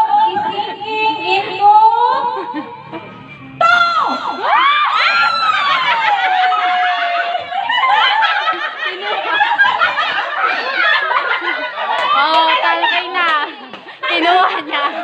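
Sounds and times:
people laughing and shouting: 0:00.0 - 0:15.0
high voice shrieking: 0:03.4 - 0:06.4.

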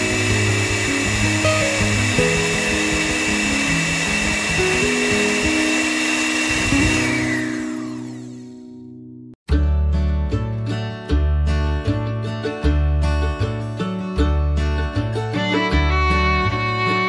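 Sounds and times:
electric motor whine: 0:00.0 - 0:08.7
background music: 0:06.7 - 0:17.0.

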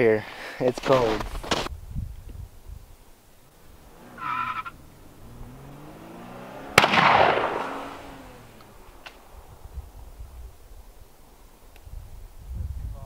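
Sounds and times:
gunshot with rolling echo: 0:06.6 - 0:08.2.

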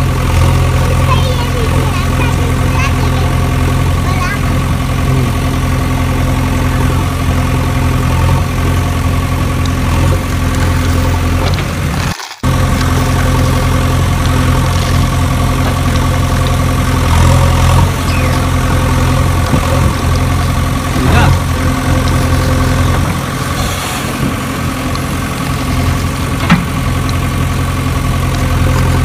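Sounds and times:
engine idling: 0:00.0 - 0:29.0.

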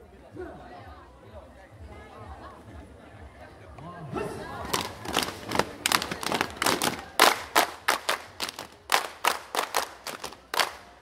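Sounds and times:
group clapping in unison: 0:04.6 - 0:11.0.

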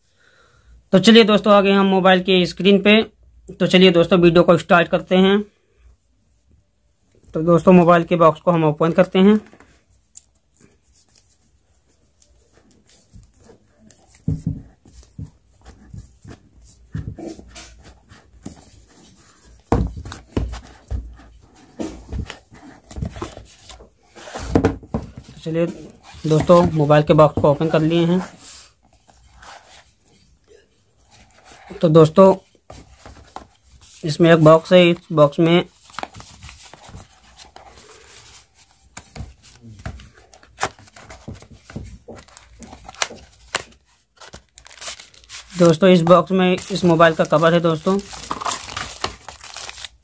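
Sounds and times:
cardboard tapping and scraping: 0:12.6 - 0:27.9, 0:35.8 - 0:45.4
plastic wrap rustling: 0:31.1 - 0:50.0.

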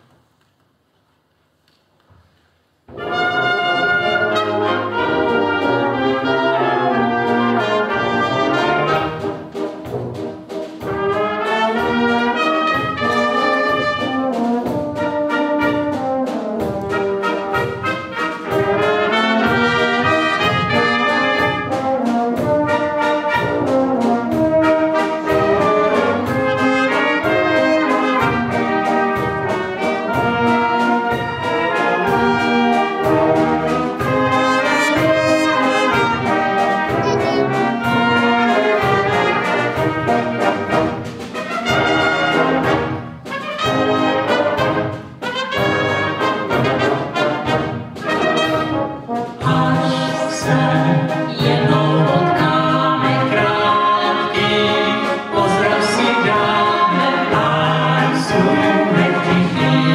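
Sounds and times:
concert wind band playing: 0:02.9 - 0:59.9.

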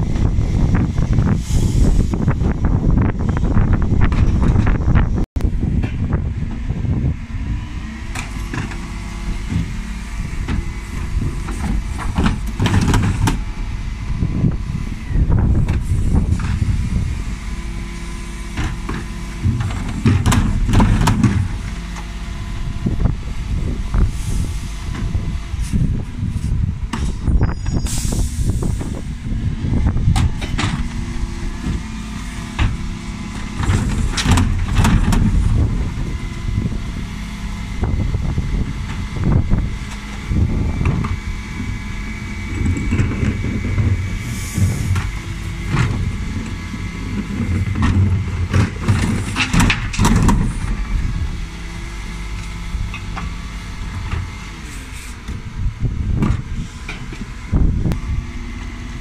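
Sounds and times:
hydraulic bin lift: 0:00.0 - 0:59.0
truck engine running: 0:00.0 - 0:59.0
bins knocking and banging: 0:18.6 - 0:21.6
air hiss: 0:27.8 - 0:29.0.

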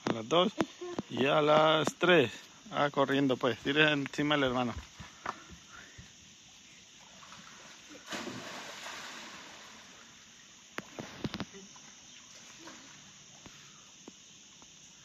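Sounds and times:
splashing water while swimming: 0:07.0 - 0:10.1
splash into pool: 0:07.1 - 0:10.1.

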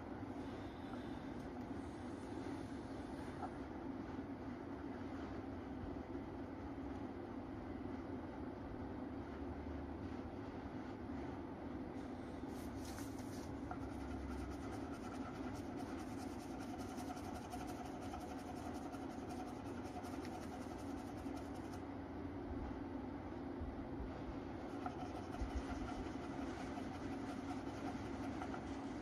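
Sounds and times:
steady room hum: 0:00.0 - 0:29.0
crayon scribbling on paper: 0:12.8 - 0:21.8, 0:24.6 - 0:29.0.

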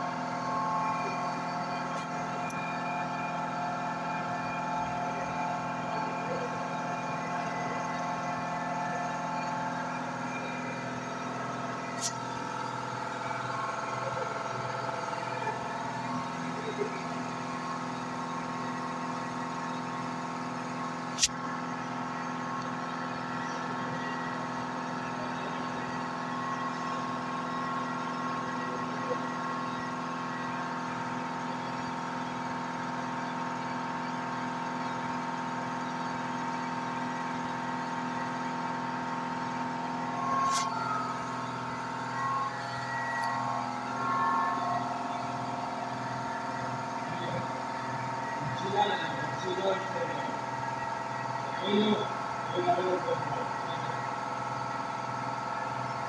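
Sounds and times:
cooling fan: 0:00.0 - 0:56.0
stepper motors whining: 0:38.1 - 0:50.8.

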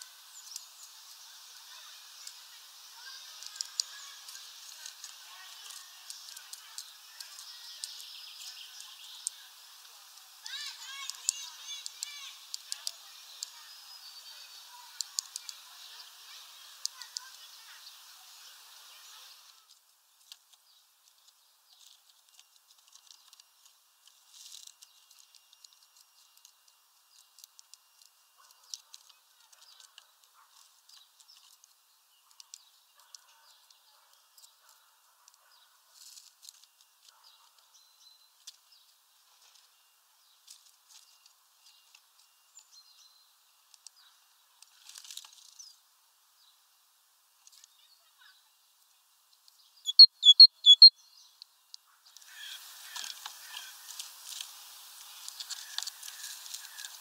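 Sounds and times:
faint bird chirps: 0:00.0 - 0:19.8, 0:47.4 - 0:54.0.

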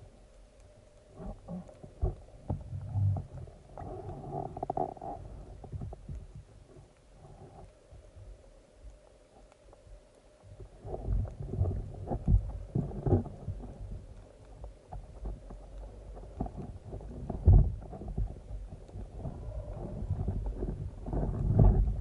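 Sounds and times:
muffled underwater water noise: 0:00.0 - 0:22.0
low thumps and knocks: 0:16.4 - 0:22.0.

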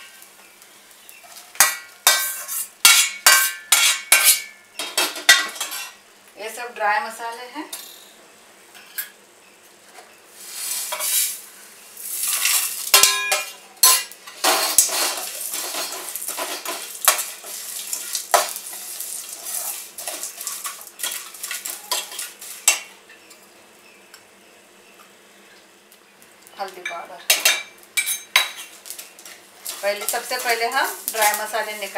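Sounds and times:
spoon scraping metal wok: 0:01.2 - 0:04.5, 0:12.2 - 0:22.8, 0:28.0 - 0:31.9
spoon clanging on pan: 0:01.6 - 0:06.0, 0:12.3 - 0:17.4, 0:20.0 - 0:22.9, 0:26.8 - 0:28.7, 0:29.7 - 0:31.9
seeds rattling: 0:28.8 - 0:31.9.

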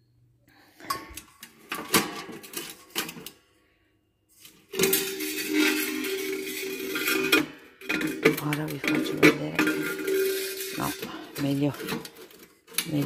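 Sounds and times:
metal scraping with ringing squeal: 0:04.7 - 0:12.5
sheet metal clinking and knocking: 0:04.7 - 0:13.0.

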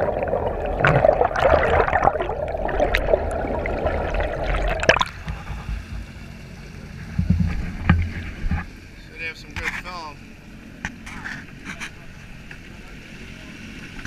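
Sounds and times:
water gurgling and rushing: 0:00.0 - 0:08.7
low rumble: 0:00.0 - 0:08.9.

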